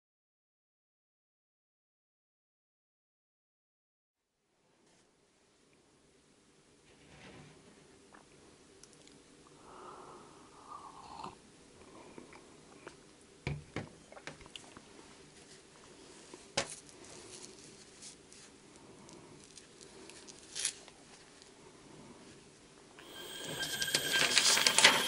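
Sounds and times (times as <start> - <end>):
rustle: 15.3 - 21.6.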